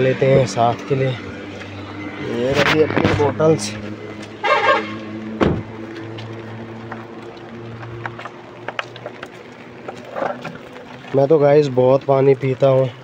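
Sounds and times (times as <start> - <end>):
light rain ticking: 5.0 - 13.0.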